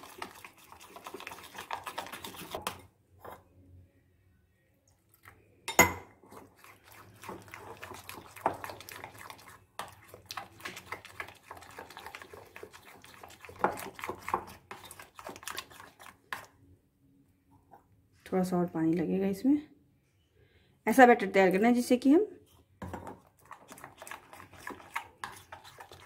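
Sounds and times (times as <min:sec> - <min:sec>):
spoon beating batter in glass bowl: 0:00.0 - 0:03.4, 0:05.7 - 0:16.6, 0:22.8 - 0:26.0.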